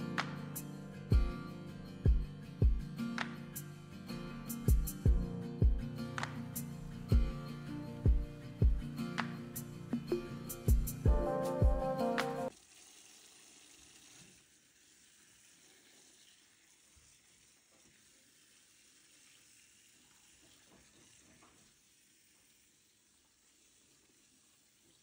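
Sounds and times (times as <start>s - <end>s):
tap spray hissing into sink: 16.8s - 18.5s, 20.0s - 21.8s.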